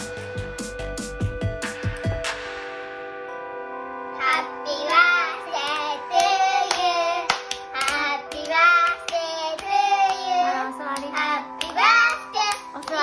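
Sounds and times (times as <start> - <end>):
background music: 0.0 - 13.0
hands clapping: 1.6 - 2.6, 4.3 - 13.0.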